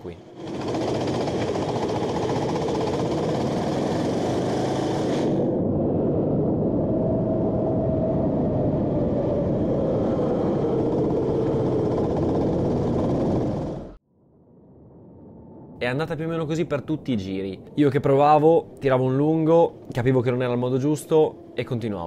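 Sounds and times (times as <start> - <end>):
go-kart engine running: 0.3 - 5.4.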